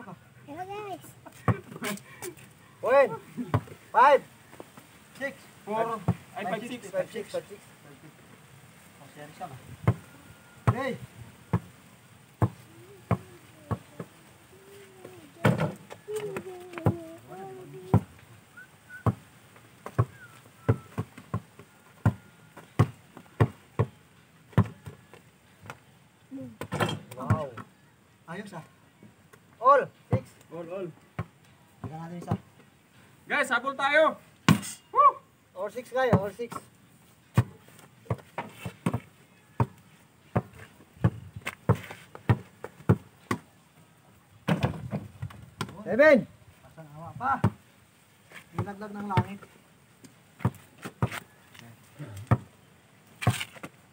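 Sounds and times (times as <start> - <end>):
basketball bouncing on dirt: 1.3 - 1.8, 3.2 - 3.8, 5.8 - 6.9, 9.7 - 11.8, 12.4 - 14.2, 15.0 - 18.2, 19.0 - 27.8, 30.1 - 30.4, 31.0 - 32.7, 34.5 - 34.8, 35.8 - 36.7, 37.3 - 43.6, 44.4 - 45.9, 47.2 - 47.6, 48.3 - 51.4, 52.0 - 53.8.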